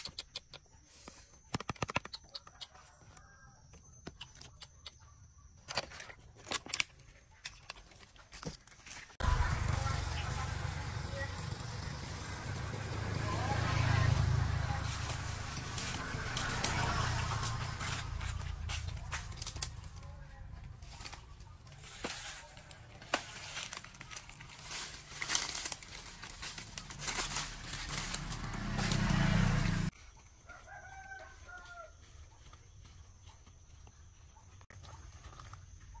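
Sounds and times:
footsteps crunching dry leaves: 0:08.6 - 0:33.4.

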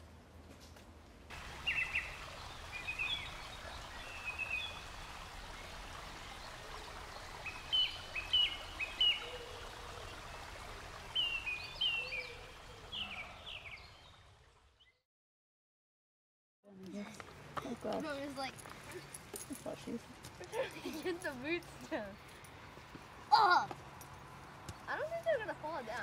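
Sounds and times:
running stream water: 0:01.3 - 0:14.9, 0:17.0 - 0:26.0
small birds chirping: 0:01.6 - 0:14.2.

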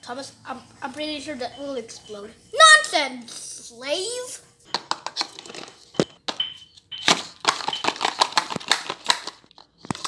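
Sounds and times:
plastic wrapping crinkling: 0:07.1 - 0:10.0.

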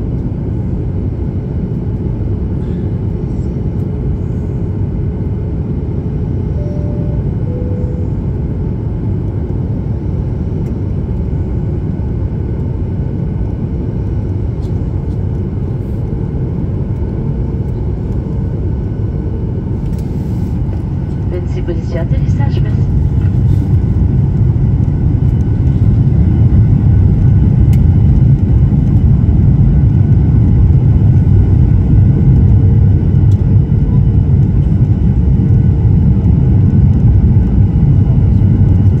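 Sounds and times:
airliner engines rumbling: 0:00.0 - 0:39.0
rushing air: 0:19.8 - 0:21.4.

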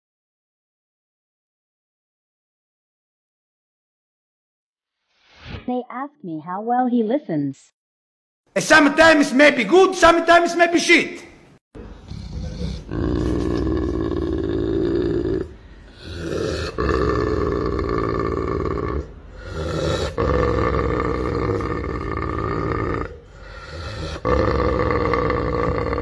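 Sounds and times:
dog groaning: 0:11.9 - 0:26.0.

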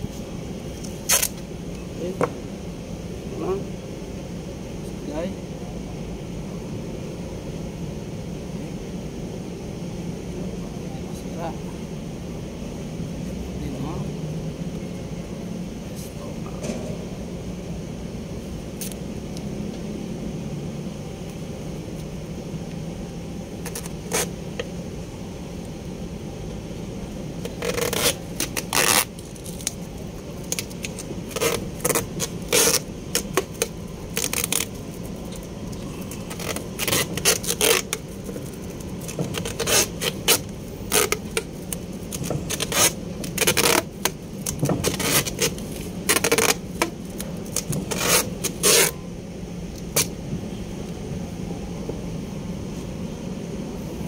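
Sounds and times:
steady low hum: 0:00.0 - 0:54.0
duct tape ripping: 0:01.0 - 0:01.4, 0:18.8 - 0:19.0, 0:23.6 - 0:24.3, 0:27.4 - 0:29.8, 0:30.4 - 0:49.0, 0:49.8 - 0:50.1.

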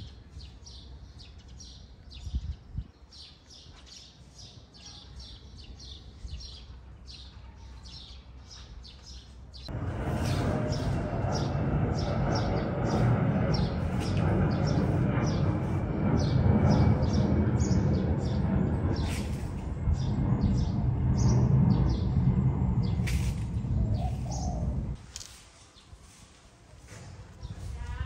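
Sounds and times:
birds chirping: 0:00.0 - 0:25.0
loud low rumble: 0:09.7 - 0:25.0.

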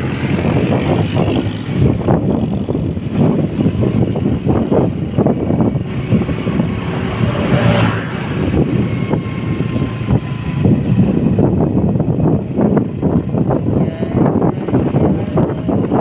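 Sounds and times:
scooter engine: 0:00.0 - 0:16.0
tyres on road: 0:00.0 - 0:16.0
wind buffeting microphone: 0:00.0 - 0:16.0.

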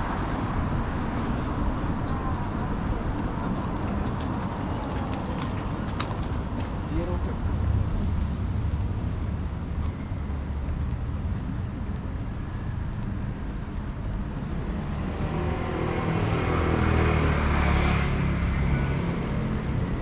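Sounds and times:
street traffic rumbling: 0:00.0 - 0:20.0
vehicle passing close by: 0:14.5 - 0:20.0.

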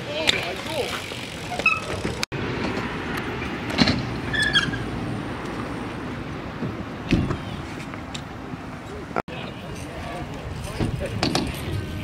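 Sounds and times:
bike tyres rolling on concrete: 0:00.0 - 0:12.0
short high squeak: 0:01.4 - 0:02.0, 0:04.3 - 0:04.8.

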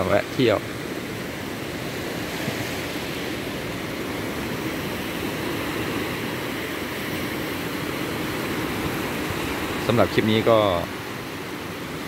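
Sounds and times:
sea surf breaking on beach: 0:00.0 - 0:12.0.

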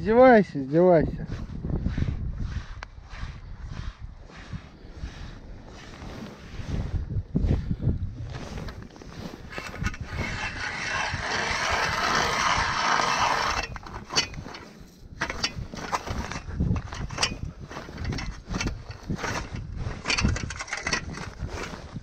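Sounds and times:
ice auger grinding: 0:08.4 - 0:22.0.

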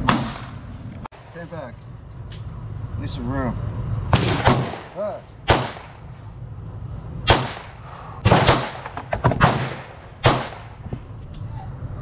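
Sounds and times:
pistol shots with echo: 0:04.1 - 0:06.1, 0:07.3 - 0:10.8
fainter distant gunshots: 0:04.1 - 0:06.2, 0:07.2 - 0:10.8.

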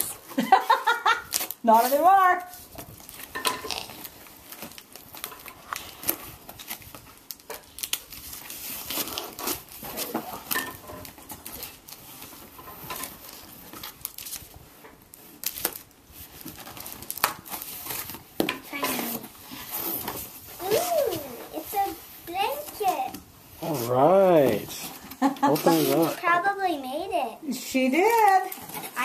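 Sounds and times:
paper wrapping tearing and crumpling: 0:00.0 - 0:26.8, 0:28.0 - 0:29.0
cardboard box pulled open: 0:25.5 - 0:26.2.

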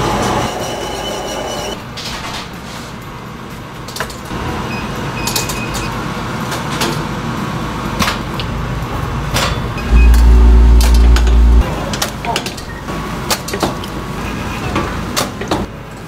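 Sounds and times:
loud low hum: 0:09.7 - 0:11.8
machinery running: 0:09.7 - 0:11.8.

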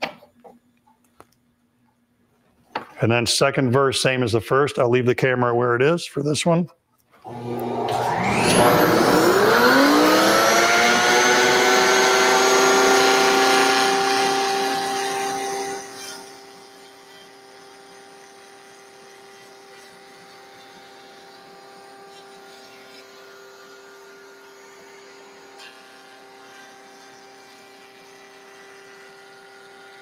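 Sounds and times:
router whining: 0:07.2 - 0:30.0.

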